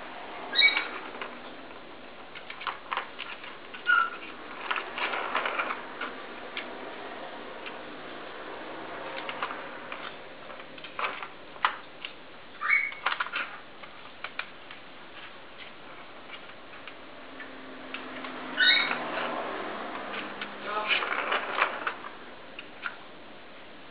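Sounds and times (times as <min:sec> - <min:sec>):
ball rattling in plastic track: 0:00.6 - 0:06.8, 0:08.9 - 0:12.2, 0:12.9 - 0:17.0, 0:18.2 - 0:23.0.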